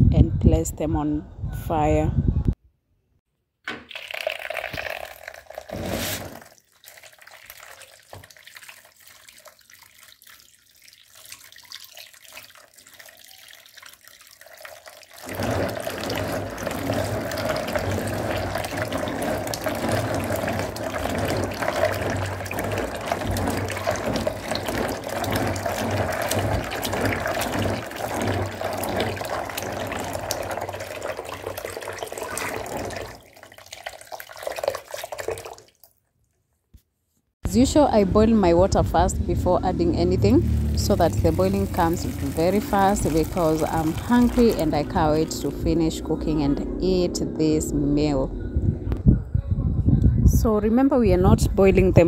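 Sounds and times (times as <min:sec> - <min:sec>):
tap water running into a basin: 0:03.7 - 0:35.9, 0:40.3 - 0:45.7
hand swishing beans in water: 0:03.9 - 0:35.9, 0:40.8 - 0:45.3.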